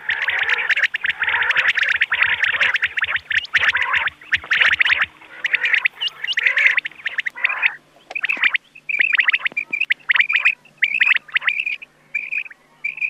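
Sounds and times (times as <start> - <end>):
quail calls: 0.0 - 13.0.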